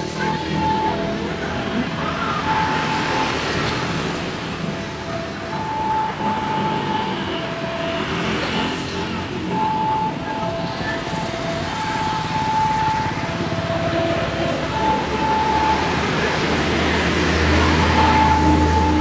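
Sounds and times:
cars and motorbikes passing: 0.0s - 19.0s
two-note tone: 17.7s - 19.0s.

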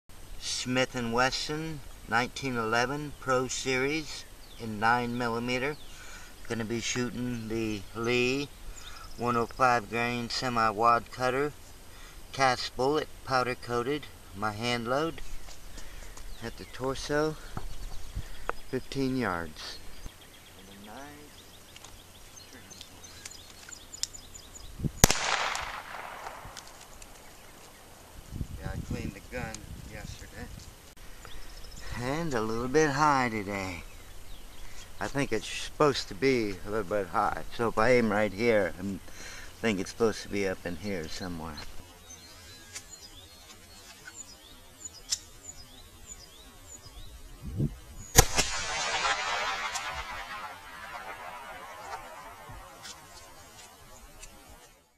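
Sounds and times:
pistol shot with echo: 25.0s - 26.9s, 48.2s - 52.8s.

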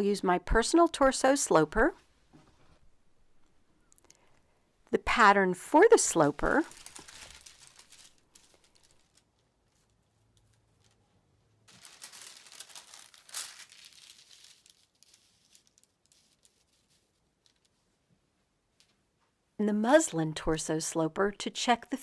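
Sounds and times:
paper rustling and crinkling: 6.1s - 11.0s, 11.7s - 17.8s.

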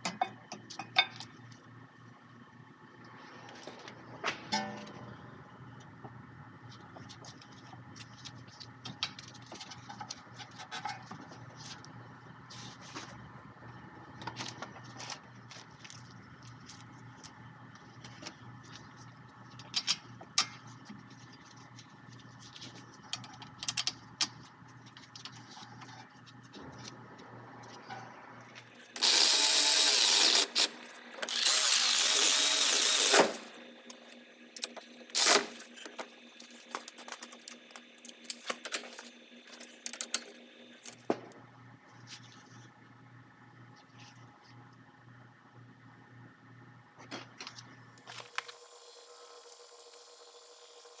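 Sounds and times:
cordless ratchet running: 29.0s - 33.5s.

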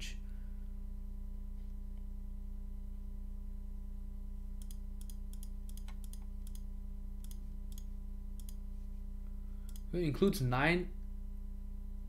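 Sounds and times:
low electrical hum: 0.0s - 12.0s
computer mouse clicking: 4.6s - 8.6s, 9.7s - 9.9s.

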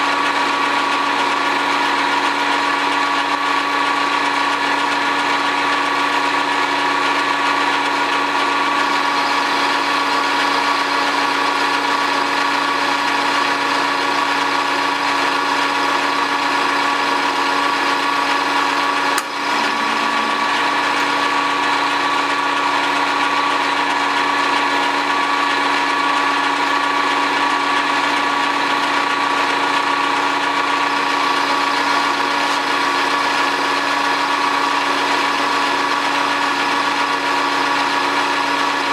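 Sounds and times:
metal lathe whining: 0.0s - 38.9s
lathe click: 18.9s - 26.2s.

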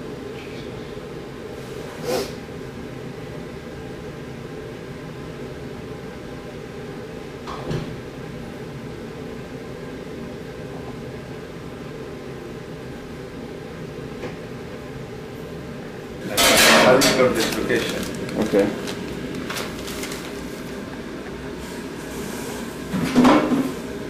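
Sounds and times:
low room hum: 0.0s - 24.0s.

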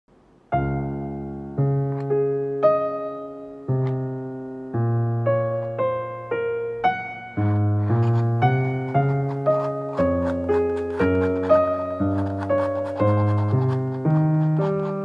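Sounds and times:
piano music: 0.4s - 15.0s.

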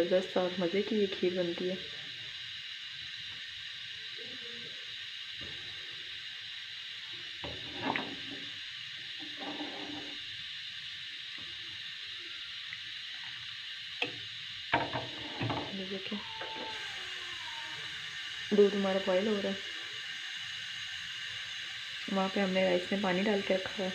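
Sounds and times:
steady high hiss: 0.0s - 23.9s
spoon scraping metal pan: 7.5s - 8.2s, 9.3s - 10.2s.

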